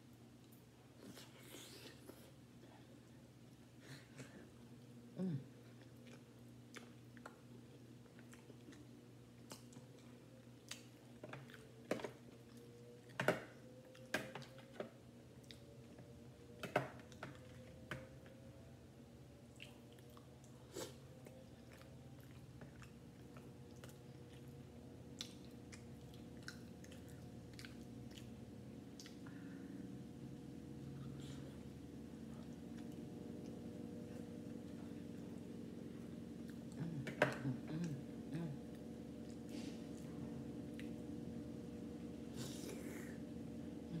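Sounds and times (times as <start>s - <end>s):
faint steady hum: 0.0s - 44.0s
close chewing with mouth clicks: 5.6s - 16.1s, 19.4s - 29.6s, 38.6s - 42.7s.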